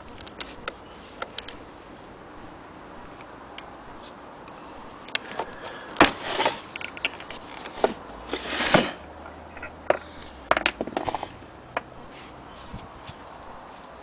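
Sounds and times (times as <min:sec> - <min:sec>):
scraping rub: 0:03.8 - 0:10.3, 0:12.0 - 0:13.2
knocks and clunks of metal and wood: 0:05.1 - 0:11.9.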